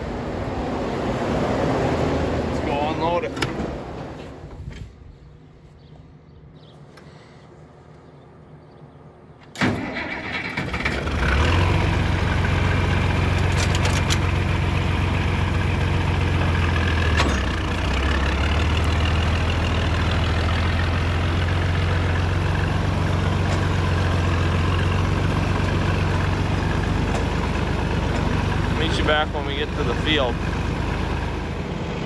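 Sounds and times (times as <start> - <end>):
tractor engine starting and idling: 9.4 - 32.0.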